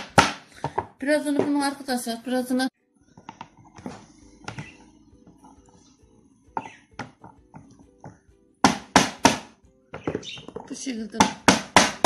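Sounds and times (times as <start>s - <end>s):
hammer cracking olives on board: 0.0s - 1.6s, 6.6s - 12.0s.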